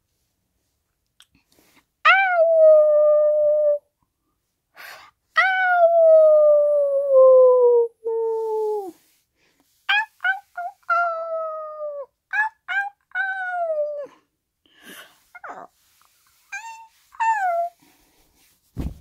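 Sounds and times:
child whining like dog: 2.0s - 3.9s, 5.4s - 9.0s, 9.9s - 14.2s, 15.4s - 15.7s, 16.5s - 17.8s
child yelping like dog: 9.9s - 14.2s.

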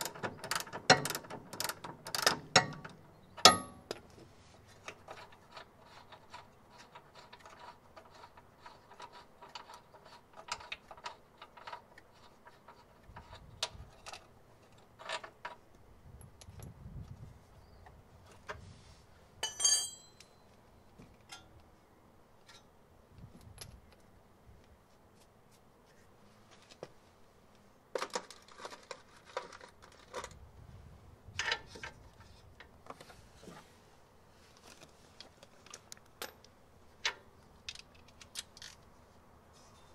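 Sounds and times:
sharp ringing clink: 3.5s - 3.8s, 19.4s - 20.4s
metal tools clinking and jangling: 19.4s - 20.4s.

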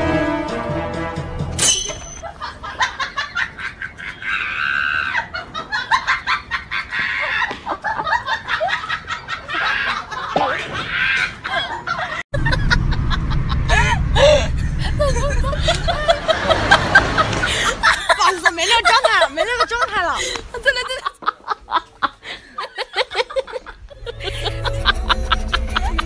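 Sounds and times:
background music: 0.0s - 1.9s, 24.1s - 26.0s.

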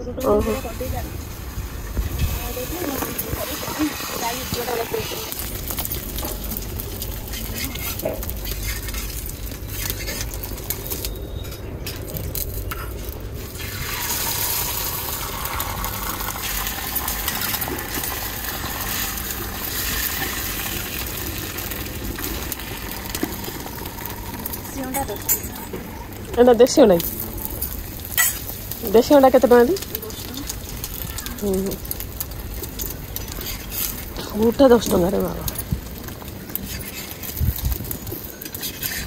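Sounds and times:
low steady rumble: 0.0s - 38.1s
egg sizzling in a pan: 0.2s - 39.0s
spatula scraping on pan: 7.1s - 12.1s, 33.2s - 34.5s, 36.5s - 37.4s, 38.4s - 39.0s.

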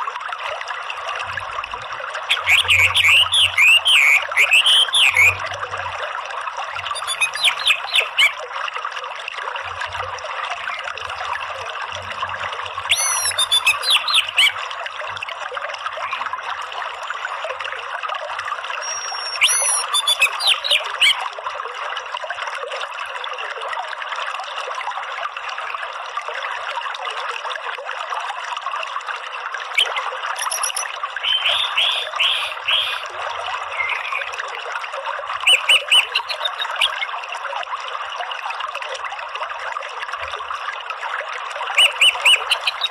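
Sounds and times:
trickling stream: 0.0s - 42.9s
thrush calling: 2.3s - 5.4s, 6.8s - 8.4s, 12.9s - 14.6s, 18.8s - 21.2s, 29.8s - 33.1s, 33.7s - 34.4s, 35.4s - 37.1s, 41.8s - 42.9s.

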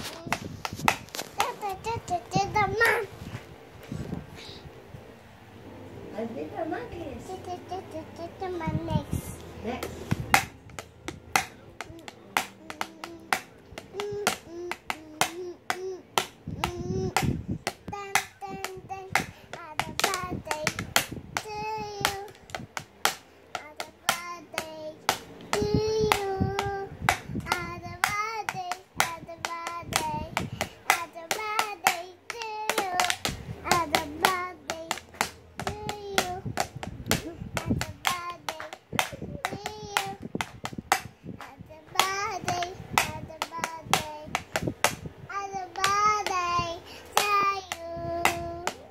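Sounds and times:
child singing: 1.4s - 3.1s, 7.2s - 9.4s, 11.8s - 22.6s, 23.5s - 40.5s, 41.4s - 44.6s, 45.3s - 48.9s
toy drum being hit: 9.8s - 45.0s.

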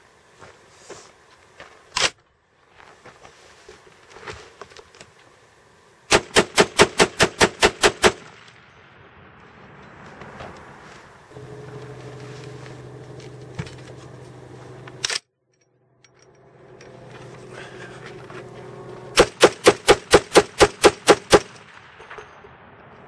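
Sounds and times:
rifle shots: 6.1s - 8.6s, 19.2s - 22.8s.

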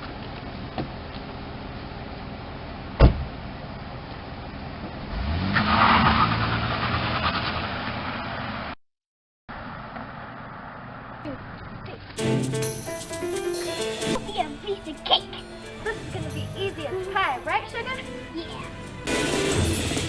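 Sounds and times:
van door slamming: 3.0s - 3.4s
van engine revving: 5.0s - 8.7s.

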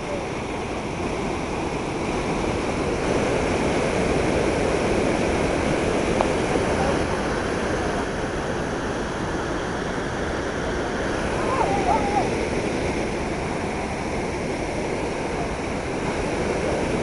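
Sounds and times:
whitewater rushing: 0.0s - 17.0s.

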